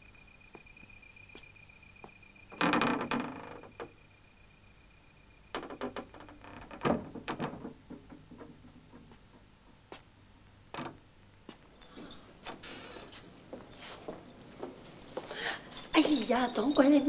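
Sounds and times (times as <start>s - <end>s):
sharp knocks and clicks: 5.5s - 10.1s.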